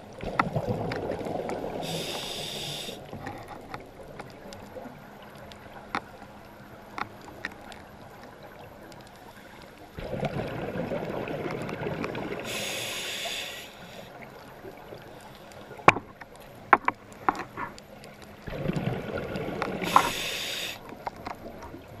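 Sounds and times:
rumbling exhaled bubbles: 0.0s - 1.9s, 10.0s - 12.5s, 18.4s - 20.2s
diver breathing through regulator: 1.8s - 3.2s, 12.4s - 14.2s, 19.8s - 20.9s.

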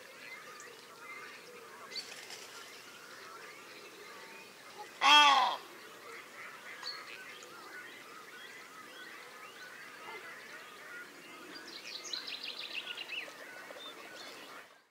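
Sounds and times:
geese calling: 4.9s - 7.0s.

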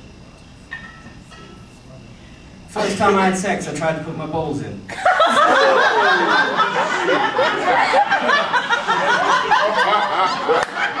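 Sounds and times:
audience laughing: 4.9s - 11.0s.

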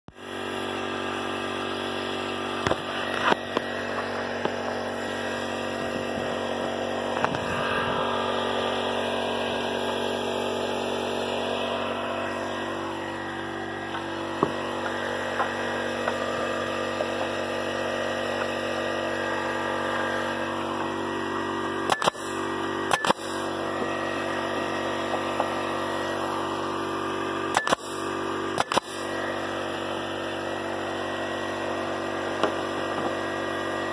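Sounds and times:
air compressor motor humming: 0.1s - 33.9s
nail gun firing: 21.8s - 23.6s, 27.5s - 29.2s.

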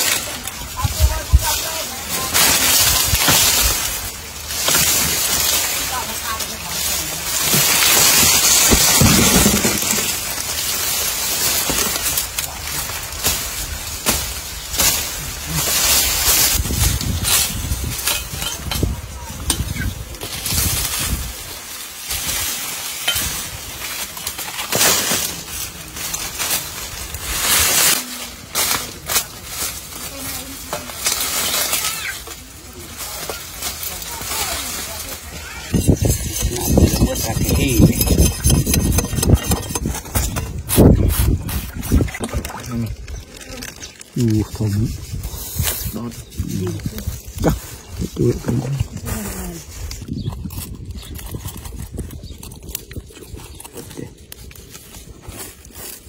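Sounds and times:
dry leaves rustling and crackling: 0.0s - 56.0s
plant stalks snapping: 22.1s - 36.0s.

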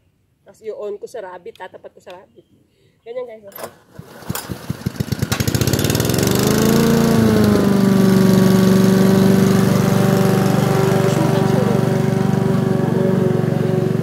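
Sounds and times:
lawn mower engine running: 3.6s - 14.0s.

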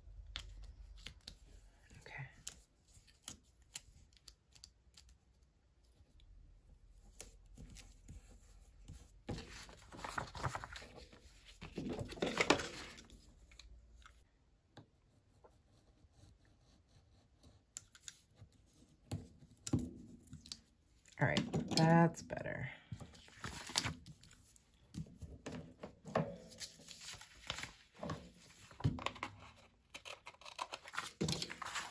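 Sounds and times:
paper rustling and sliding: 9.3s - 13.1s, 23.1s - 24.1s, 26.4s - 31.9s.

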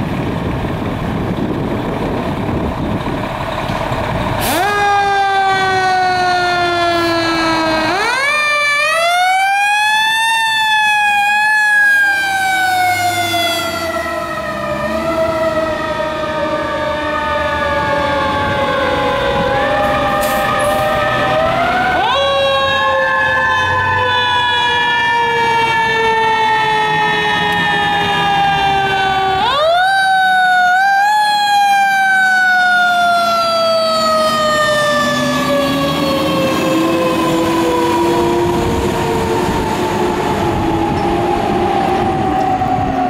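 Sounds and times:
fire engine sirens wailing: 0.0s - 43.0s
lower siren tone rising: 2.2s - 43.0s.

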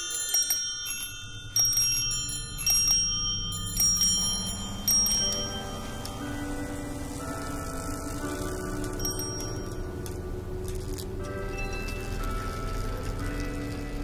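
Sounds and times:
bright bell-like chimes: 0.0s - 10.3s
low held musical notes: 1.2s - 14.0s.

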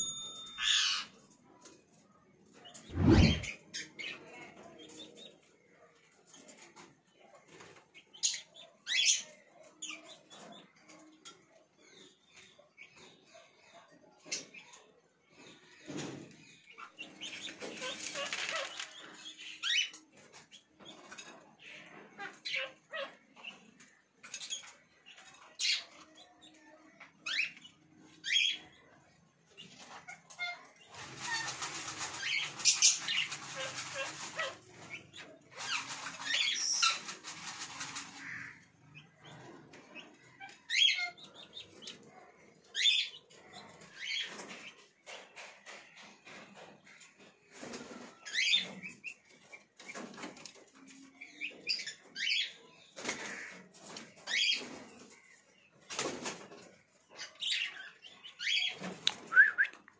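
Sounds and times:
wings fluttering: 2.7s - 3.6s, 17.2s - 19.3s, 30.9s - 38.7s, 55.8s - 56.8s.

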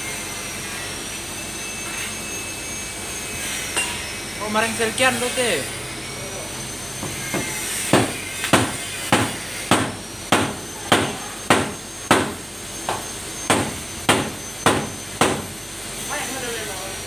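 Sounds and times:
hammer blows: 7.0s - 15.6s.

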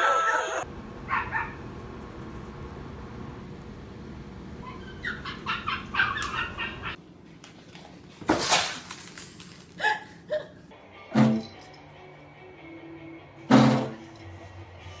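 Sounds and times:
small dog yipping: 4.6s - 7.0s.

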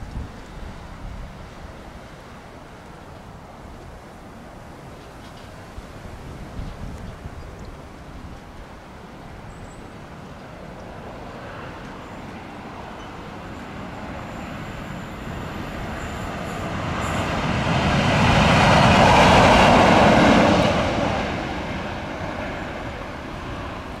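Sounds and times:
rush of passing train: 0.0s - 24.0s
train wheels rumbling on rails: 11.0s - 24.0s.

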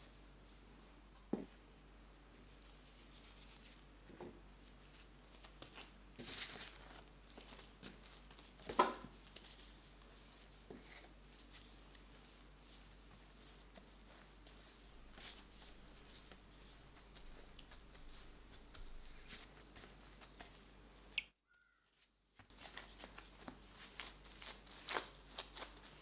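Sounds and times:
dough squishing and rustling: 1.1s - 21.2s, 21.9s - 26.0s.

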